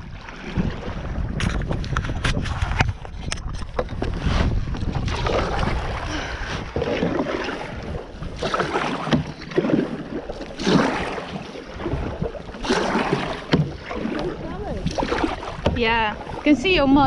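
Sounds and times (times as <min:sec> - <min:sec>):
kayak paddle splashing in water: 0:00.0 - 0:17.0
wind buffeting microphone: 0:00.0 - 0:17.0.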